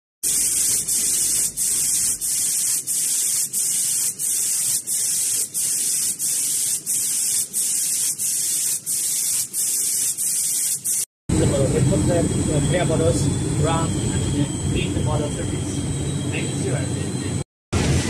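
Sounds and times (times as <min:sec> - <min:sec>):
paint spray guns hissing: 0:00.2 - 0:11.1.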